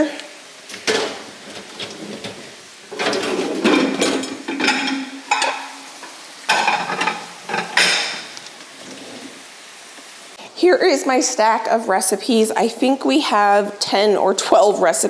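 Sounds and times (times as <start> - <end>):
food sizzling in pans: 0.0 - 15.0
dishes and cutlery clattering: 0.8 - 5.7, 6.5 - 8.3.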